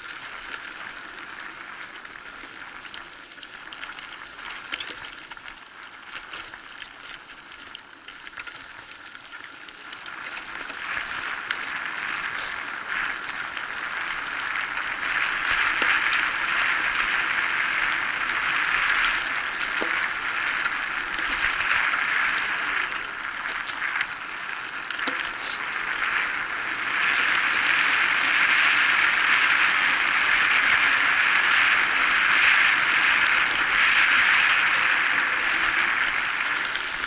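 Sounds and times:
bike tyres rolling on dirt: 0:00.0 - 0:37.0
small clicks and rattles: 0:00.0 - 0:37.0
wind noise: 0:09.8 - 0:37.0.

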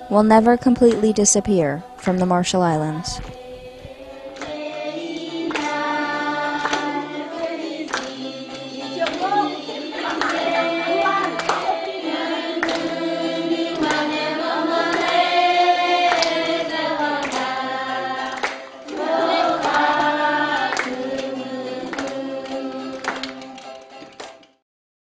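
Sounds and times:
group of voices singing: 0:00.0 - 0:23.6
steady percussive beat: 0:04.2 - 0:21.5.

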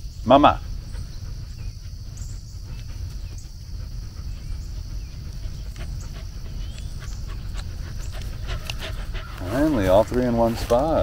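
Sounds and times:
insects buzzing: 0:00.0 - 0:11.0.

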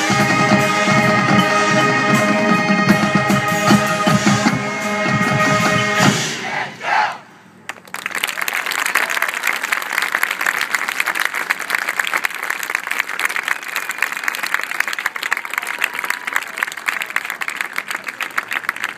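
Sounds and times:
marching band note: 0:00.0 - 0:07.4
audience applause: 0:07.7 - 0:18.9.

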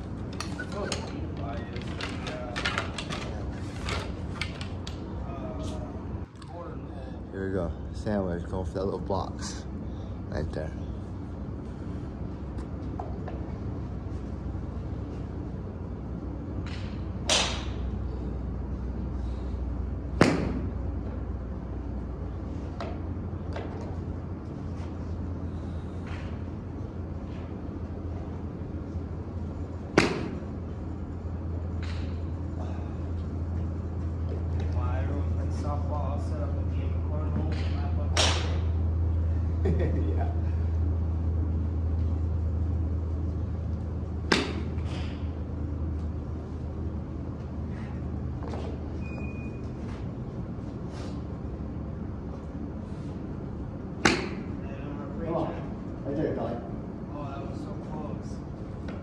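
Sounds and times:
steady low rumble: 0:03.2 - 0:59.0
golf balls being struck: 0:16.6 - 0:17.9, 0:20.1 - 0:20.8, 0:29.9 - 0:30.4, 0:37.4 - 0:38.7, 0:44.2 - 0:45.0, 0:54.0 - 0:54.6.

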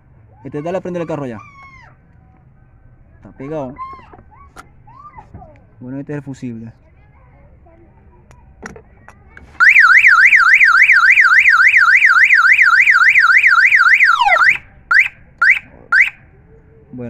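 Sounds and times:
car alarm short chirps: 0:09.6 - 0:16.2
car alarm siren warbling: 0:09.6 - 0:16.2.

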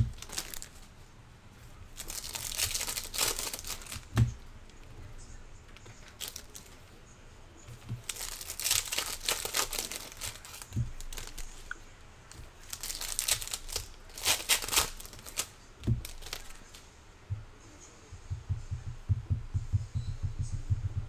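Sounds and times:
foil wrappers crinkling: 0:00.0 - 0:00.9, 0:01.9 - 0:04.3, 0:05.8 - 0:06.8, 0:07.8 - 0:16.8
soft low thumps: 0:17.3 - 0:21.0.

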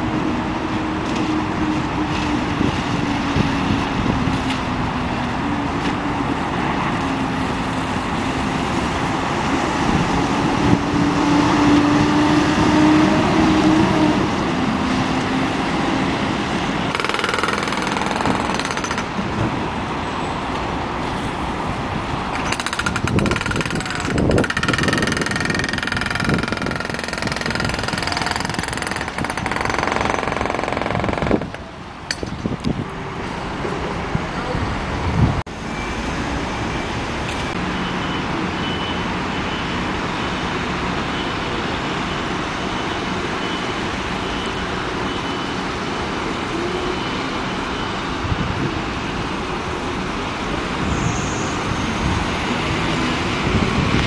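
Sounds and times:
large vehicle engine rattling: 0:21.0 - 0:32.7.

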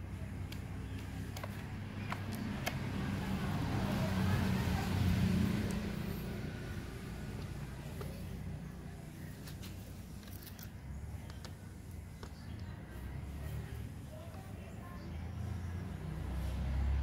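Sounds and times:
passing vehicle rumble: 0:00.0 - 0:09.4, 0:12.8 - 0:17.0.

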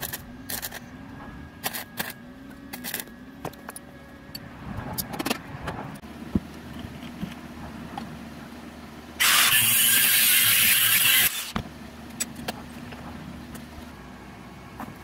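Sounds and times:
angle grinder grinding steel: 0:09.2 - 0:11.6.

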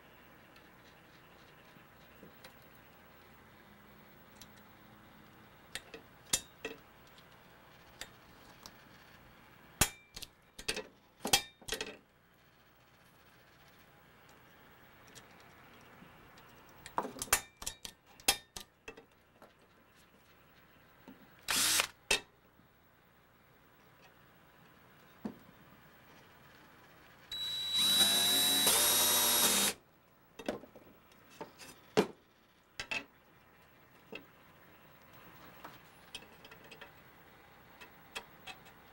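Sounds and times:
power drill boring: 0:21.5 - 0:21.9, 0:27.3 - 0:29.8.

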